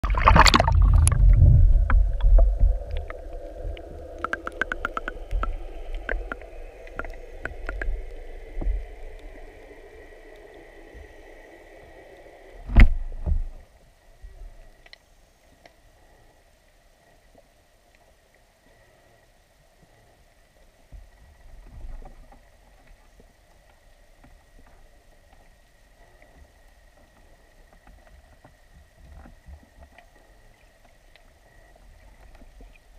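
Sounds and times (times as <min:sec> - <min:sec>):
camera splashing into water: 0:00.0 - 0:01.3
underwater clicks: 0:00.0 - 0:10.4
bubbly water wash: 0:00.0 - 0:13.6
faint underwater hiss: 0:00.0 - 0:32.9.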